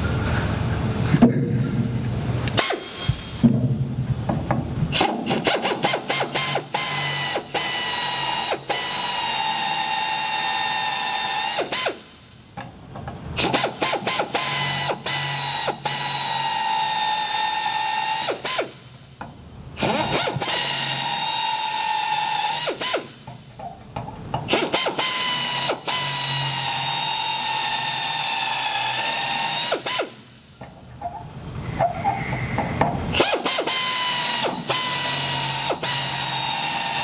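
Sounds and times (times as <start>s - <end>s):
pneumatic drill whining: 2.5s - 3.4s, 4.9s - 12.1s, 13.4s - 18.9s, 19.8s - 23.5s, 24.5s - 30.4s, 31.6s - 37.0s.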